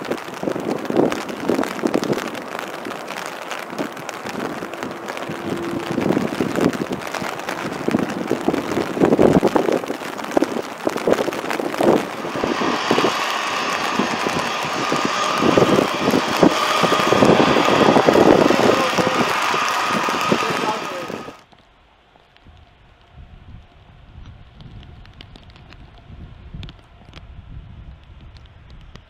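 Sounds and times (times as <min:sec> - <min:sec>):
jet engines roaring: 0:00.0 - 0:21.4
jet engine whine: 0:00.0 - 0:21.5
rain and wind on microphone: 0:00.0 - 0:29.0.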